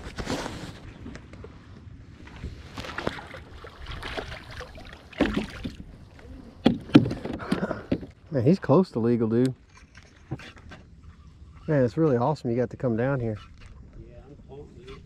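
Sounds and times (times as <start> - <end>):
water splashing against kayak: 2.2 - 8.2.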